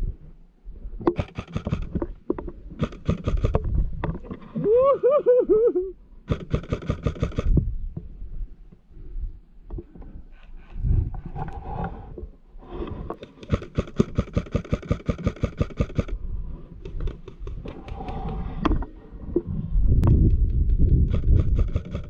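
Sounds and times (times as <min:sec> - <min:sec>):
airsoft rifle shots: 0:01.1 - 0:01.9, 0:06.3 - 0:07.5, 0:13.4 - 0:16.1.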